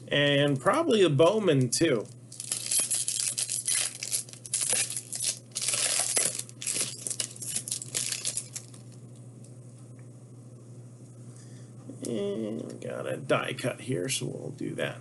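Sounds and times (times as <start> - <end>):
wrapper tearing and crinkling: 2.3 - 8.9.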